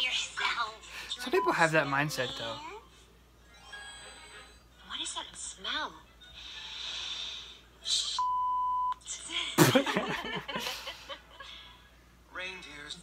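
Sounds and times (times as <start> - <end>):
breathy hiss: 6.4 - 7.7
censor bleep: 8.2 - 9.0.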